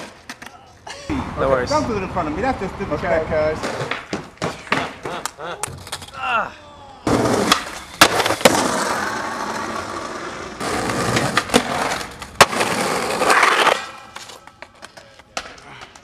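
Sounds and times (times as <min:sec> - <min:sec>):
skateboard wheels rolling on concrete: 0:00.0 - 0:06.2, 0:07.0 - 0:16.0
skateboard clacks: 0:07.1 - 0:16.0.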